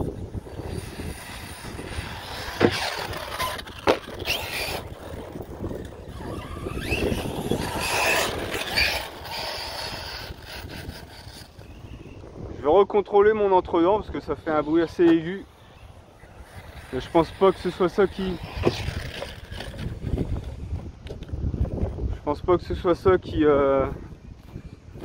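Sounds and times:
rc truck motor whine: 0:00.0 - 0:12.3, 0:14.1 - 0:21.4.

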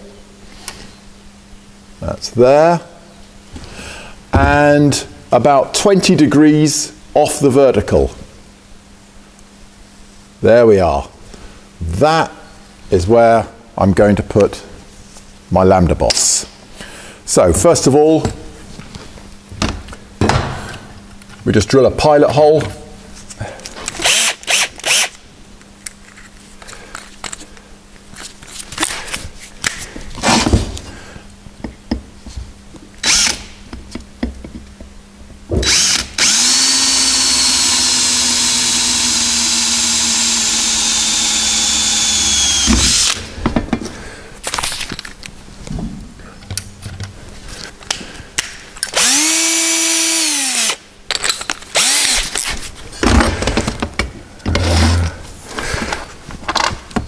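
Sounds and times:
cordless drill boring through metal: 0:24.0 - 0:25.1, 0:33.0 - 0:33.4, 0:35.6 - 0:43.2, 0:48.9 - 0:50.8, 0:51.8 - 0:52.3.

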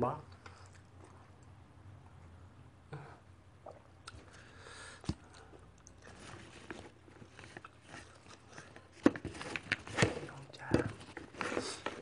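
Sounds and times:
person chewing food: 0:00.4 - 0:01.6, 0:03.6 - 0:09.0.

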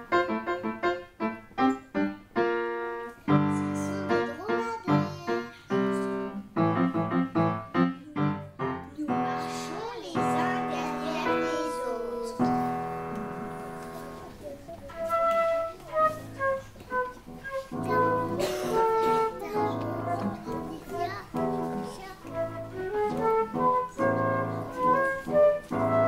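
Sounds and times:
piano chords: 0:00.0 - 0:26.0
flute melody: 0:11.2 - 0:20.6, 0:21.4 - 0:26.0.

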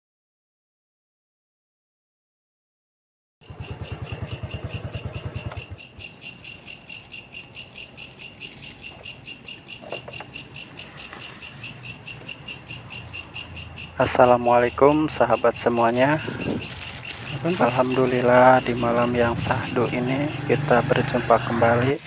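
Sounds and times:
night insects trilling: 0:03.4 - 0:22.0.

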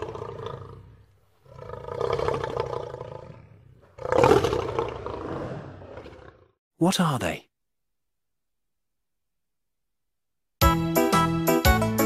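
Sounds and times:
lion roaring: 0:00.0 - 0:06.6.

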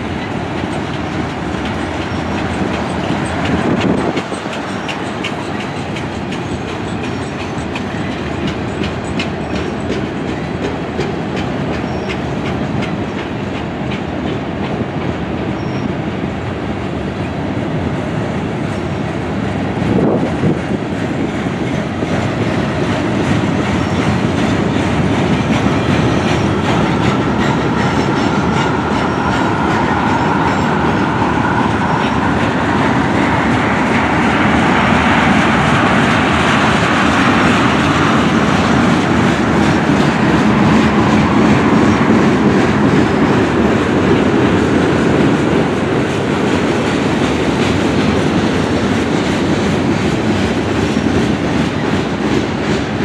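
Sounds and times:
train wheels clattering on rails: 0:00.0 - 0:53.0.

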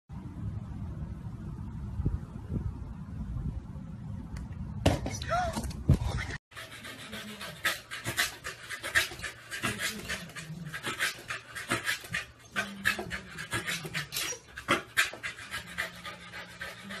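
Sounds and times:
dog panting: 0:06.5 - 0:17.0.

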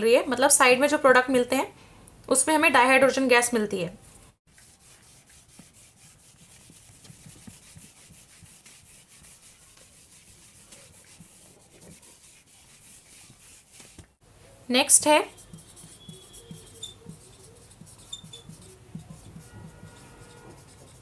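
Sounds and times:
scratching on writing surface: 0:04.5 - 0:14.1, 0:15.1 - 0:21.0.

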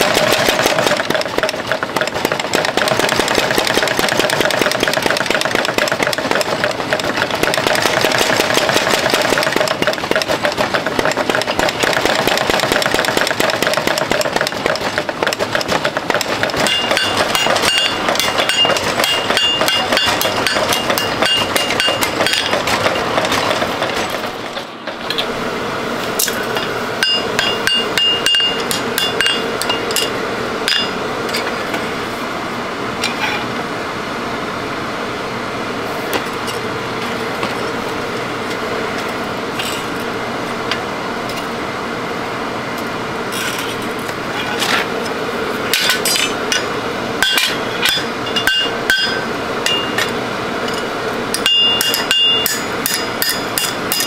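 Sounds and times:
hammer striking steel on anvil: 0:16.6 - 0:22.6, 0:26.2 - 0:31.0, 0:45.7 - 0:50.1, 0:50.7 - 0:54.0.

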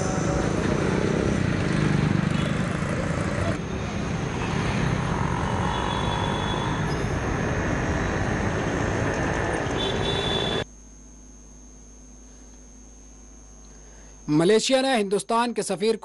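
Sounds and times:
auto-rickshaw engines: 0:00.0 - 0:10.6
motor scooter engines: 0:00.0 - 0:10.6.

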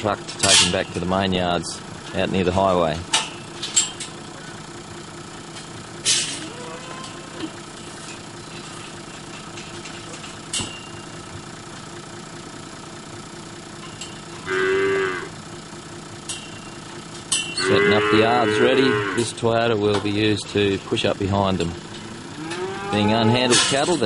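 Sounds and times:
car engine idling: 0:00.0 - 0:24.0
cow mooing: 0:06.4 - 0:07.6, 0:14.4 - 0:15.4, 0:17.6 - 0:19.4, 0:22.3 - 0:23.6.

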